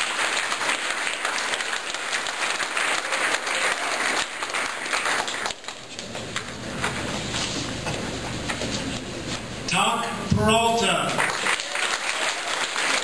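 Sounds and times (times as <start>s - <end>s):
audience applauding: 0.0s - 7.0s, 10.9s - 13.0s.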